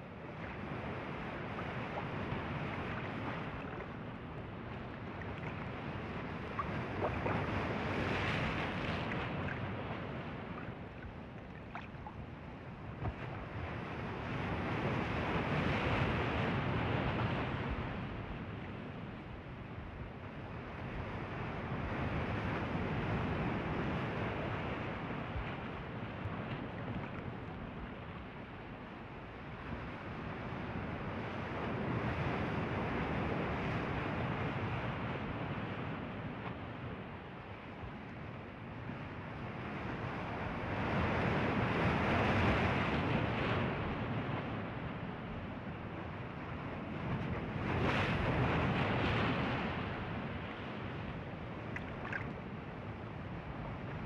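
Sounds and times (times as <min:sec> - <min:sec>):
ocean waves breaking: 0:00.1 - 0:15.3, 0:40.0 - 0:54.0.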